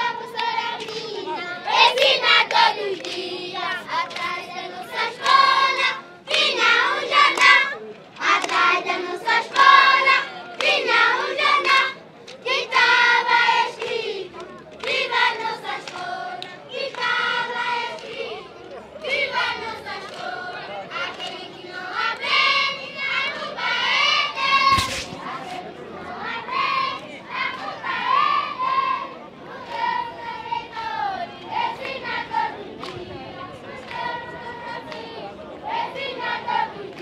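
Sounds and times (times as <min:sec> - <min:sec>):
children singing in unison: 0:00.0 - 0:18.4, 0:19.0 - 0:37.0.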